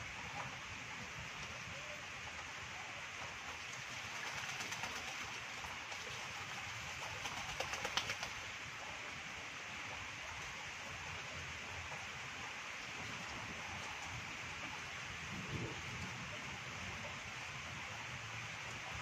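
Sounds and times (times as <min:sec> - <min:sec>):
rain falling on water: 0:00.0 - 0:19.0
duck splashing and flapping wings: 0:03.3 - 0:08.6.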